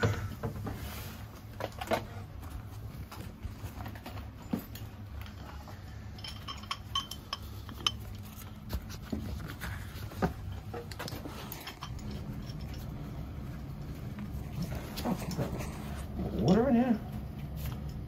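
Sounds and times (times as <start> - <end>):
steady low hum: 0.0 - 18.0
metallic clinks of tools: 4.4 - 8.3, 11.4 - 12.9.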